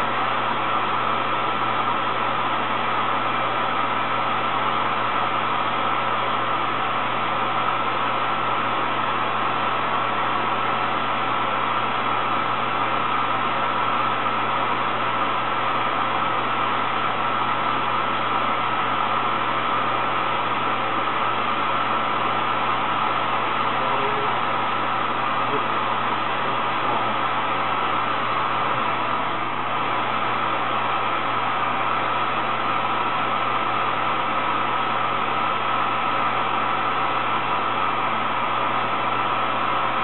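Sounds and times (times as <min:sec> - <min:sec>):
steady mechanical hum: 0:00.0 - 0:40.0.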